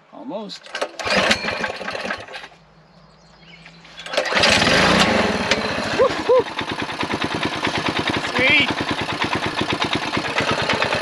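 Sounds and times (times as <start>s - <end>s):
engine pull-start: 0.6s - 2.6s, 3.9s - 11.0s
small engine running: 0.8s - 2.6s, 4.0s - 11.0s.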